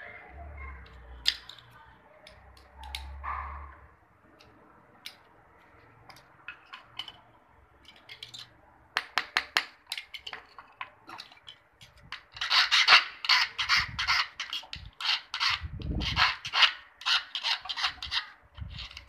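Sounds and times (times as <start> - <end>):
clicks of small metal parts: 0.8 - 3.2, 7.8 - 8.5
hand file rasping on metal: 12.3 - 19.0.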